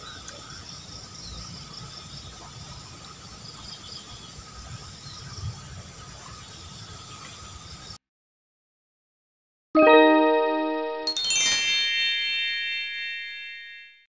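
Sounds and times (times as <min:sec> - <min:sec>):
insects chirping and trilling: 0:00.0 - 0:08.0.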